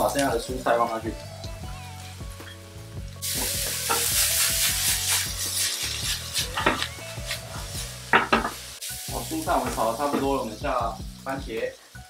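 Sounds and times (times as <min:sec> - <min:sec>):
vegetables sizzling in hot oil: 0:00.0 - 0:12.0
spatula scraping a pan: 0:03.7 - 0:08.6.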